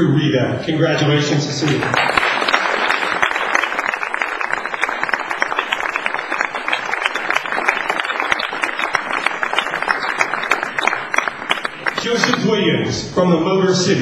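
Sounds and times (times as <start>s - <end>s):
audience applauding: 1.6s - 12.6s.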